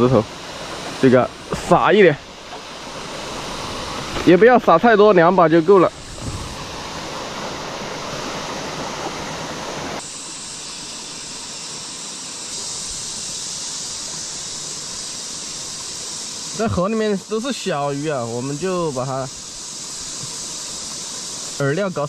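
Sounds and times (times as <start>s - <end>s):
creek water rushing: 0.0s - 22.0s.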